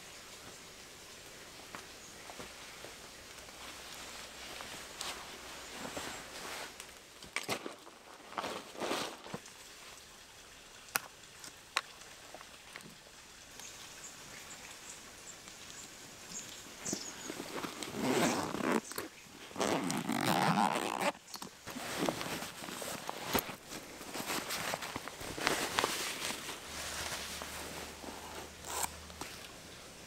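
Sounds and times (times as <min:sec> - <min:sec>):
backpack zipper being pulled open: 0:17.6 - 0:21.2, 0:27.9 - 0:29.0.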